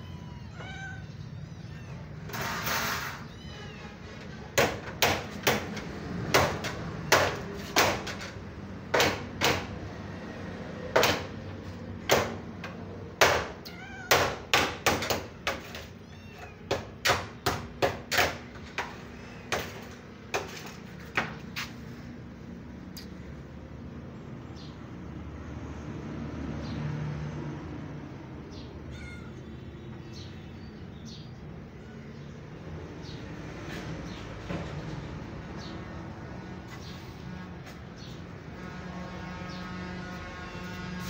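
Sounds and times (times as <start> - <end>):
kittens mewing: 0.0 - 4.6, 13.5 - 14.5, 15.5 - 17.0, 28.5 - 30.8
sharp knocks: 4.6 - 9.8, 10.9 - 11.4, 12.1 - 16.0, 16.6 - 21.4.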